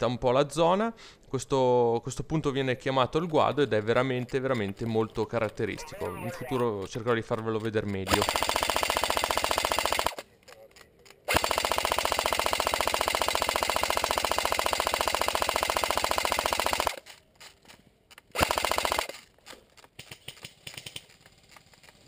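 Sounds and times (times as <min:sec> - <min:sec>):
airsoft gun firing full-auto: 0:08.1 - 0:10.2, 0:11.3 - 0:17.1, 0:18.3 - 0:19.3.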